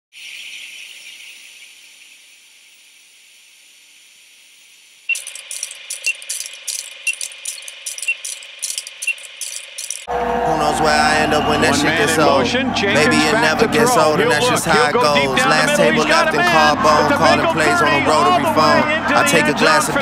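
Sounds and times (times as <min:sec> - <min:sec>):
television static hiss: 0:00.9 - 0:09.0
short beeps: 0:05.1 - 0:09.7
film projector clatter: 0:05.1 - 0:10.1.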